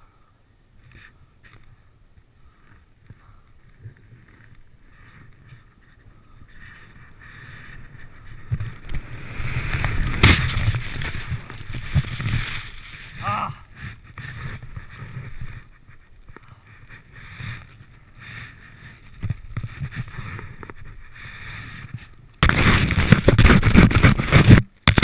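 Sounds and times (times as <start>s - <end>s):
wind on microphone: 3.1s - 24.6s
snowboard hissing through snow: 7.5s - 13.3s.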